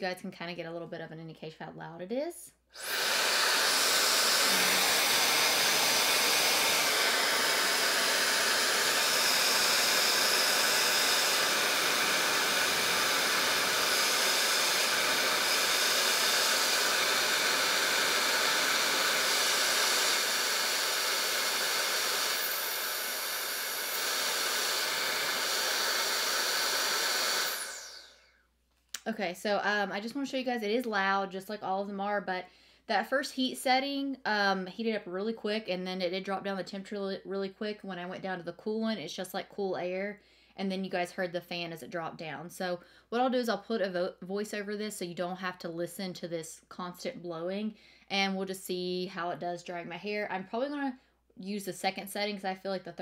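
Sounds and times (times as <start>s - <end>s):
hair dryer blowing: 2.8s - 28.4s.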